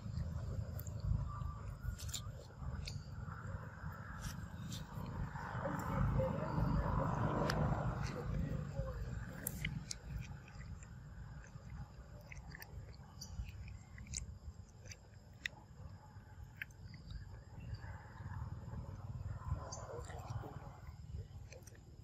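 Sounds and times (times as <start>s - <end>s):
monkey chewing fruit: 0.0s - 22.0s
soft wet clicks and smacks: 7.1s - 18.8s.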